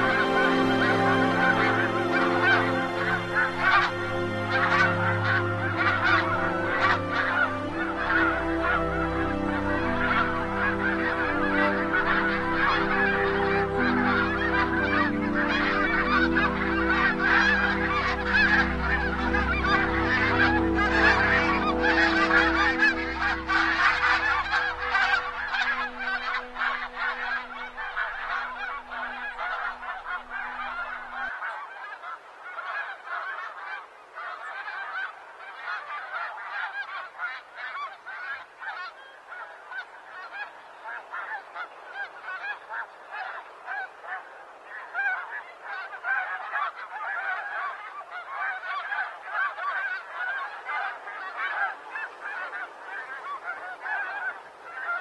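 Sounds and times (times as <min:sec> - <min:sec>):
geese honking: 0:00.0 - 0:55.0.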